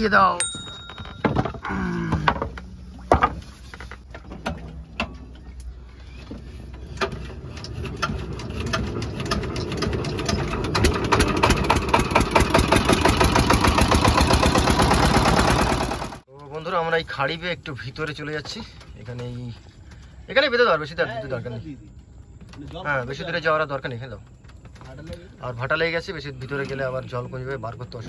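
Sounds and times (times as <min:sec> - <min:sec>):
knocks and clicks of hand-cranking: 0:06.9 - 0:15.9
diesel boat engine chugging: 0:07.4 - 0:16.2.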